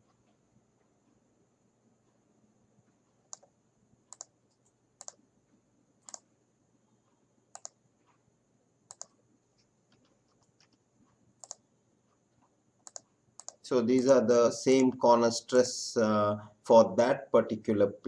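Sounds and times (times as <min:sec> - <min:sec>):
computer mouse clicks: 0:03.2 - 0:05.2, 0:06.0 - 0:06.3, 0:07.5 - 0:08.2, 0:08.9 - 0:11.7, 0:12.4 - 0:13.6
keyboard keystrokes: 0:08.9 - 0:09.1, 0:12.8 - 0:13.6.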